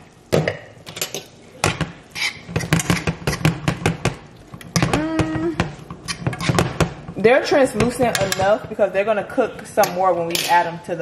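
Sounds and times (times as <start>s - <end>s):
fork scraping frying pan: 2.1s - 3.5s, 6.0s - 6.7s
person humming: 4.8s - 5.6s.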